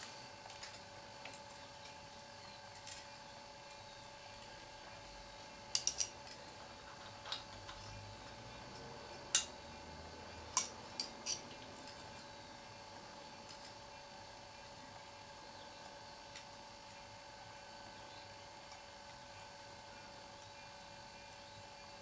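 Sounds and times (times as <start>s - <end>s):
spanner clinking on metal: 5.7s - 6.4s, 10.5s - 12.0s.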